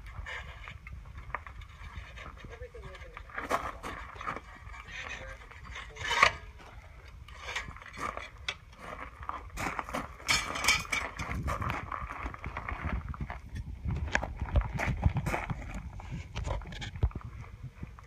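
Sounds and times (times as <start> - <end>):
steel shank scraping and clanking: 1.5 - 8.6, 10.2 - 11.5
boots shuffling on gravel: 7.9 - 17.5.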